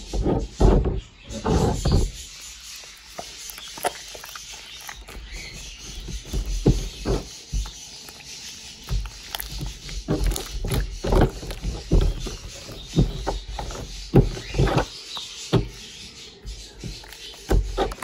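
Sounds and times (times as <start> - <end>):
slime squishing and squelching: 0.0 - 18.0.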